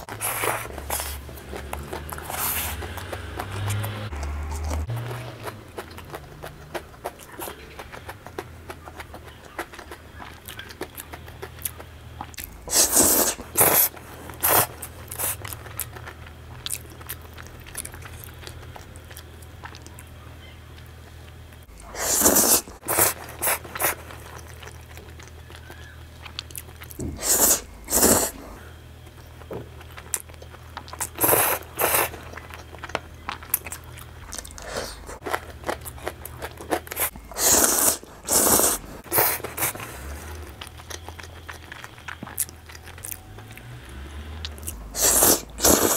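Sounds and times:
slurping spaghetti: 0.0s - 7.6s, 12.6s - 15.6s, 21.9s - 24.5s, 27.0s - 28.6s, 30.9s - 32.4s, 36.5s - 40.5s, 44.8s - 45.9s
chewing: 0.0s - 45.9s.

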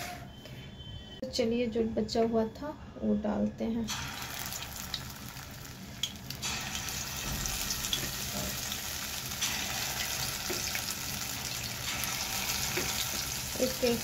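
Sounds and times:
deep-frying in hot oil sizzling: 3.8s - 14.0s.

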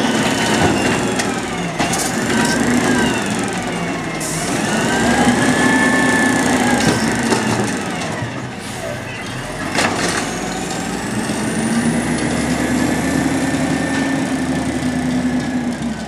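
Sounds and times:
hydraulic pump whine: 0.0s - 8.8s
garbage truck engine running: 0.0s - 16.0s.

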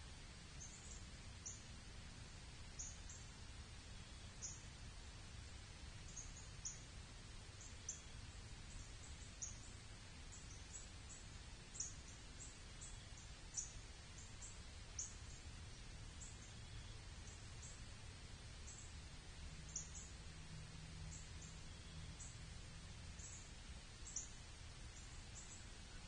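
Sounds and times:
faint low rumble: 0.0s - 26.0s
small birds chip calls: 0.4s - 1.8s, 2.7s - 3.3s, 4.0s - 4.7s, 6.0s - 6.9s, 7.5s - 19.1s, 19.7s - 20.2s, 23.0s - 26.0s.

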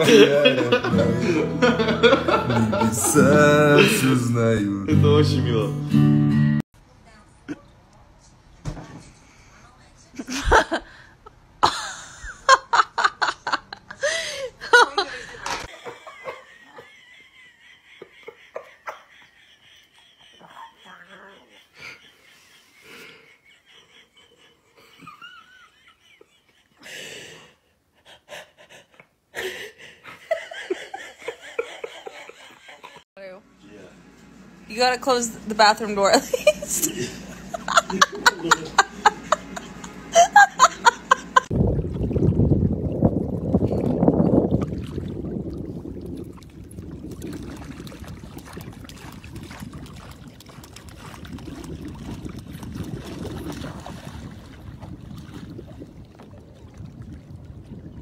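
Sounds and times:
person wheezing laughter: 39.2s - 41.5s
water splashing around kayak: 41.5s - 58.0s.

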